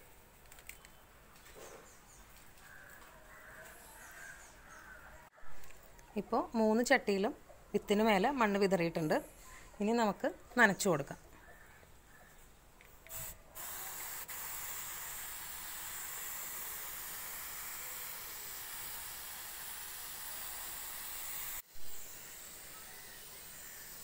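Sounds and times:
pump sprayer hissing: 0:13.1 - 0:24.0.

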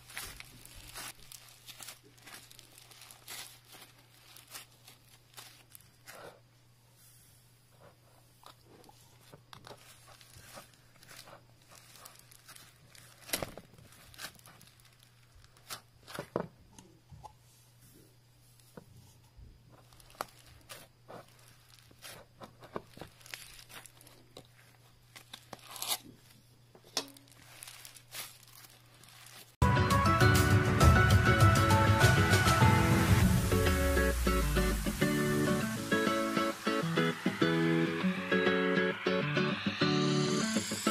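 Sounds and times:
beaded slime crackling: 0:00.0 - 0:06.3, 0:08.7 - 0:16.2, 0:19.7 - 0:29.6.

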